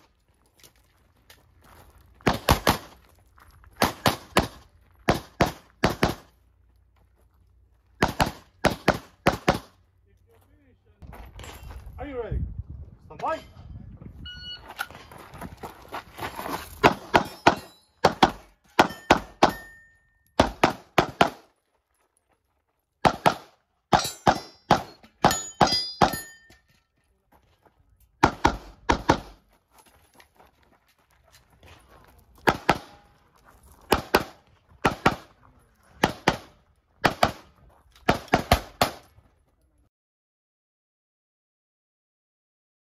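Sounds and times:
pistol shots: 2.2 - 2.9, 8.0 - 9.7, 20.4 - 21.4, 23.0 - 26.2, 32.4 - 33.1, 33.9 - 35.4, 36.0 - 39.1.

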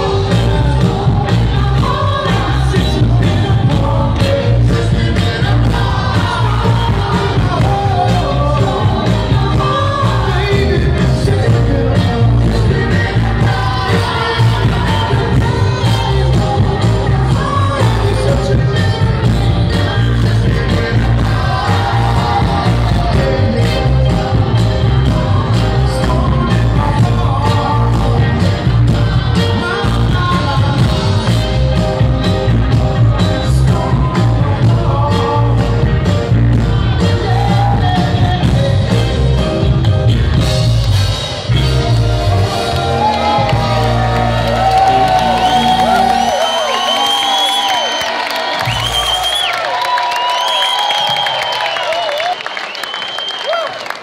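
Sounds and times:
male vocal group singing: 0.0 - 39.9
live soul band: 0.0 - 49.8.

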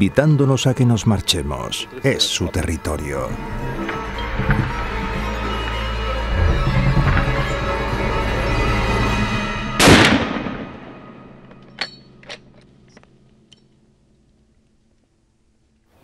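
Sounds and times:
background music: 0.0 - 13.3
rifle shot with echo: 9.8 - 11.0.

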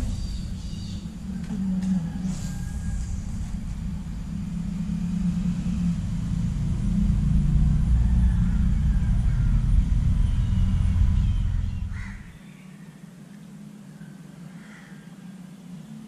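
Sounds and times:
traffic rumble on bridge: 0.0 - 12.4.

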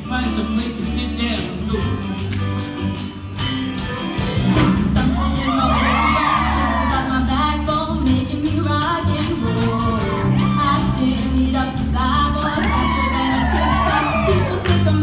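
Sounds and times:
woman singing into microphone: 4.9 - 15.0
people whooping and shouting: 5.2 - 7.4, 9.6 - 11.0, 12.5 - 15.0.

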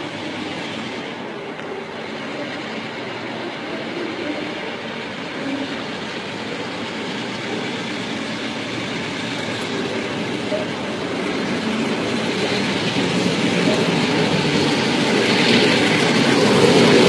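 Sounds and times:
train approaching on rails: 0.0 - 17.0.

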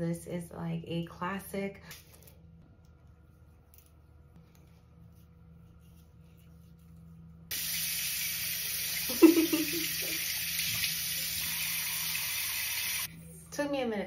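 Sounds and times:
faucet water running into sink: 7.5 - 13.1.

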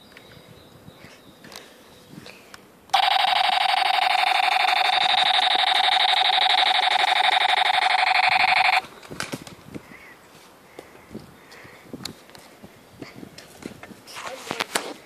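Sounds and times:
fluttering electronic buzzing tone: 3.0 - 8.8.

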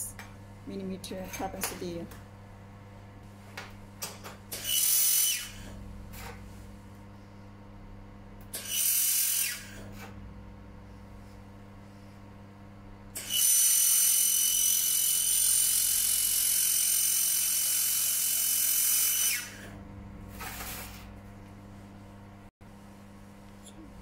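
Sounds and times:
low steady hum: 0.0 - 4.6, 5.5 - 8.6, 9.8 - 13.2, 19.6 - 24.0.

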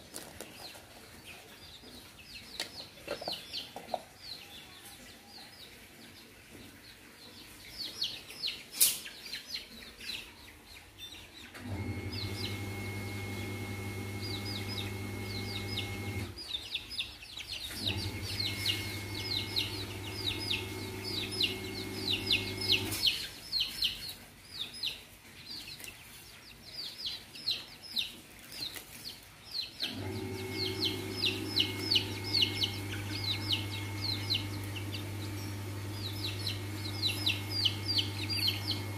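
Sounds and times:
chicks peeping: 0.0 - 38.9
machine hum: 11.6 - 16.4, 17.8 - 23.2, 29.8 - 38.9.

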